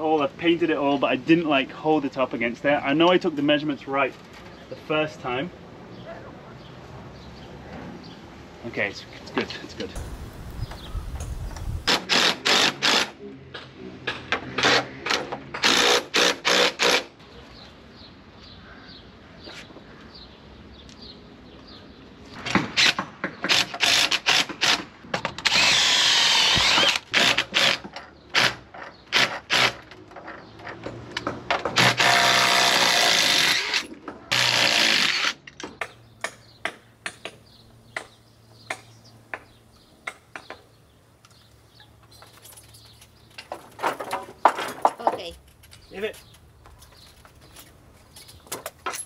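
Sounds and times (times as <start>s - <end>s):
cordless drill driving screws: 11.8s - 13.1s, 25.4s - 29.8s, 31.8s - 35.4s.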